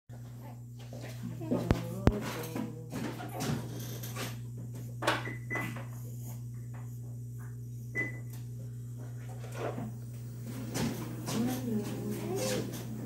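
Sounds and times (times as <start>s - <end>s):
steady low hum: 0.1s - 13.0s
treadmill console beeping: 5.2s - 5.8s, 8.0s - 8.4s.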